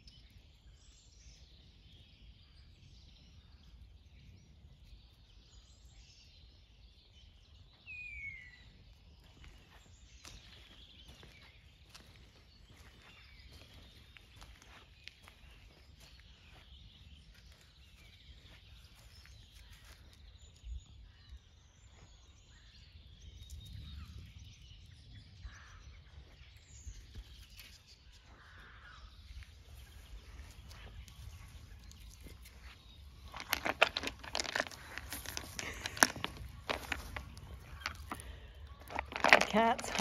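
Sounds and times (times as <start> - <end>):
distant bird chirps: 0.0 - 40.0
dry leaves rustling: 29.9 - 40.0.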